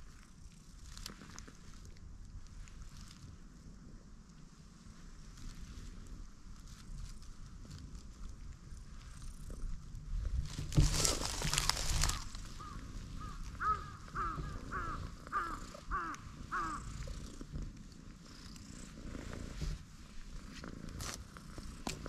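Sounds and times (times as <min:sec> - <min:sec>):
cat purring: 0:00.0 - 0:22.0
bird calling: 0:11.6 - 0:17.0.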